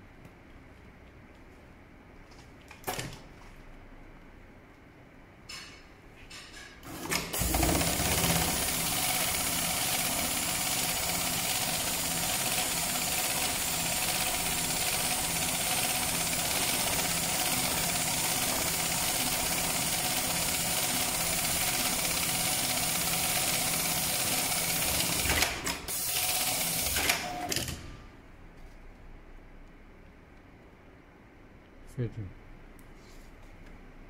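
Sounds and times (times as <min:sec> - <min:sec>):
sewing machine stitching: 0:06.8 - 0:27.9.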